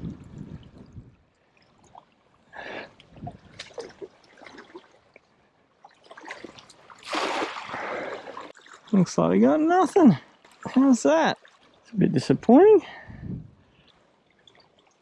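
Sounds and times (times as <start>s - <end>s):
net splashing on water: 5.9s - 8.8s.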